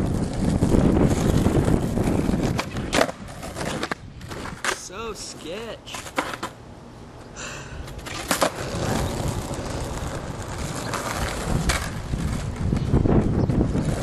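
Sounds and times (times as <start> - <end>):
steady rushing noise: 0.0 - 3.3
skateboard clacking on asphalt: 0.0 - 6.7, 7.8 - 14.0.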